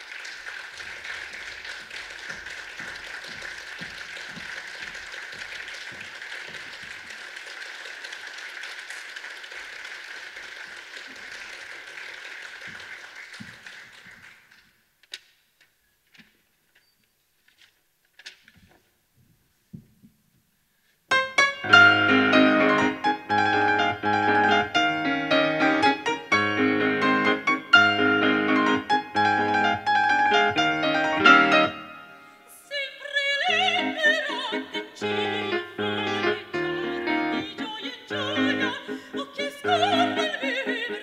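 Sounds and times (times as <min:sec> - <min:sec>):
audience applauding: 0:00.0 - 0:14.8, 0:21.7 - 0:32.0.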